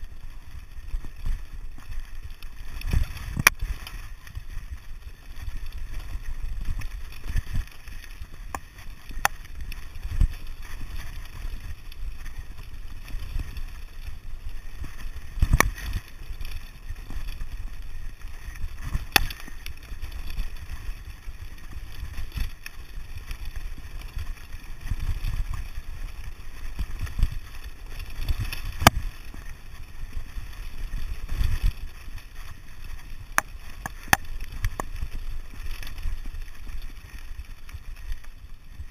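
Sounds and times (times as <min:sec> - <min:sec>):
bike tyres rumbling over rocks: 0:00.0 - 0:38.9
bike knocking and clicking: 0:33.4 - 0:35.0.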